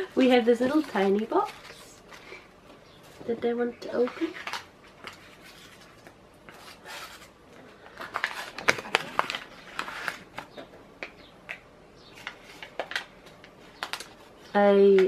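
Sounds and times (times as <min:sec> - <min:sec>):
paper crinkling and rustling: 0:00.1 - 0:10.8, 0:12.1 - 0:15.0
paper crackles and clicks: 0:03.8 - 0:11.6, 0:12.2 - 0:15.0.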